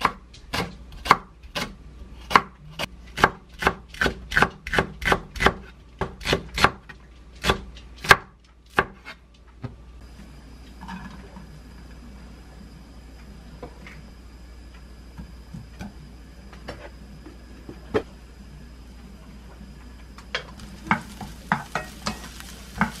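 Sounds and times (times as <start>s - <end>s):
knife chopping on wooden board: 3.2s - 6.8s.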